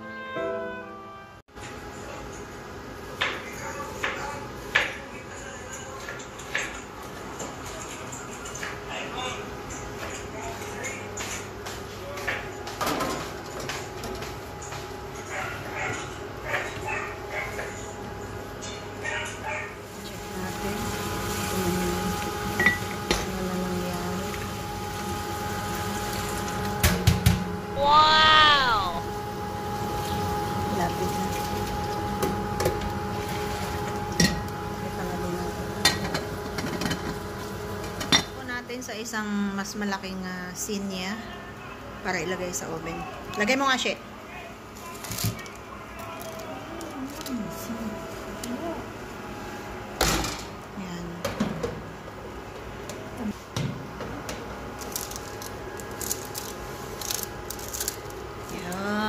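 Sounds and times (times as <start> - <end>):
steady background hum: 1.3 - 59.0
paper crinkling: 44.8 - 48.6, 54.8 - 58.9.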